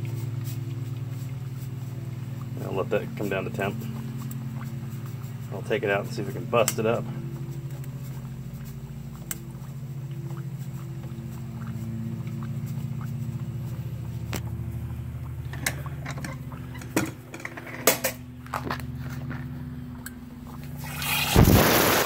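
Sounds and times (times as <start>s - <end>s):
sharp ticks and crackles: 0.0s - 17.5s
liquid nitrogen bubbling hiss: 0.0s - 22.0s.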